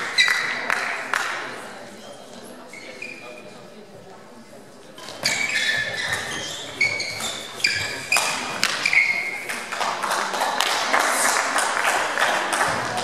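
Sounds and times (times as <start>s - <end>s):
shoes squeaking on floor: 0.0s - 0.7s, 2.0s - 3.6s, 4.9s - 9.7s.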